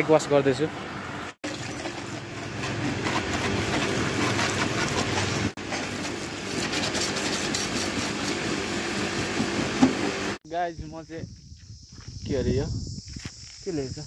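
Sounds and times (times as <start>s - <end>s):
pressure washer pump humming: 1.0s - 10.4s.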